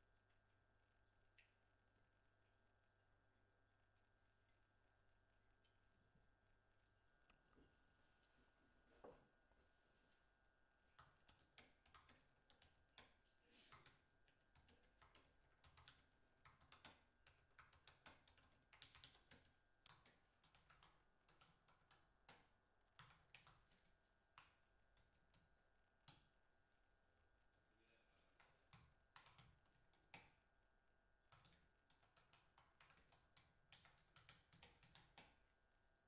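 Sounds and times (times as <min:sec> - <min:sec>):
faint laptop keyboard typing: 0:10.8 - 0:36.0.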